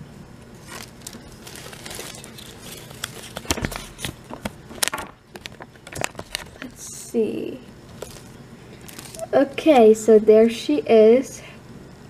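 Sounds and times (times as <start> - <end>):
wrapper and paper crinkling: 0.6 - 6.8, 7.9 - 9.9.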